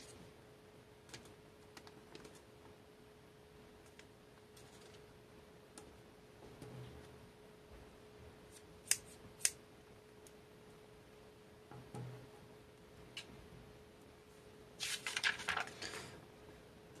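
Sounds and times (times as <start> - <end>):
faint steady hum: 0.0 - 17.0
paper being handled: 14.8 - 16.2.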